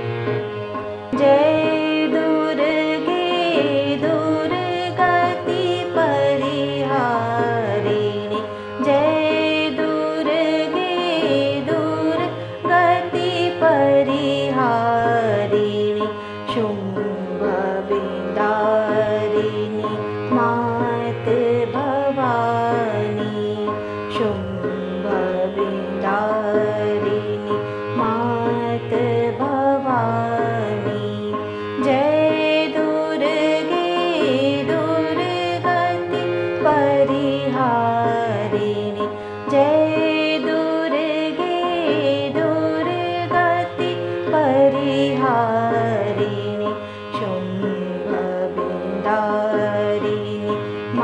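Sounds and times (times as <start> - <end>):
tabla playing: 0.0 - 51.0.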